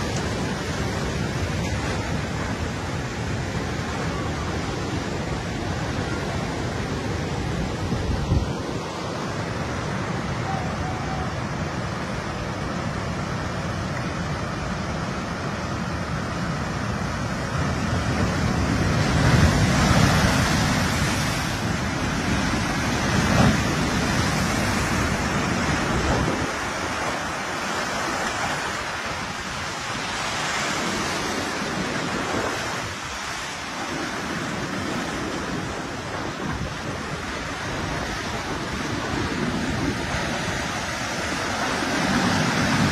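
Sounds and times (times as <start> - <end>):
seawater rushing and surging: 0.0 - 42.9.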